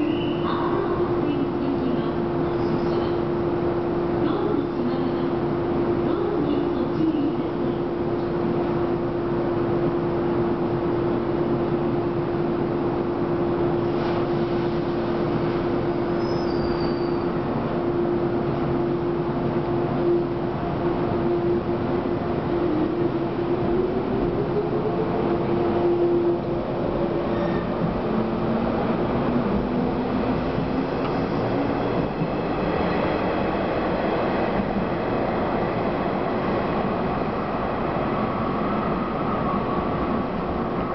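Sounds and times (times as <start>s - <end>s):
electric train equipment hum: 17.3s - 40.9s.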